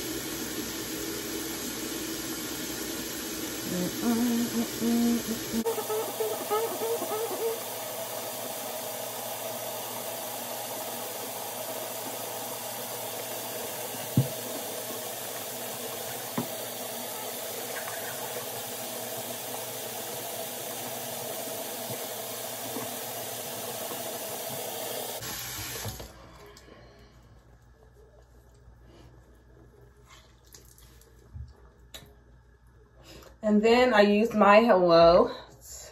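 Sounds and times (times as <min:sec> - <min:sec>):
tap water running: 0:00.0 - 0:26.3.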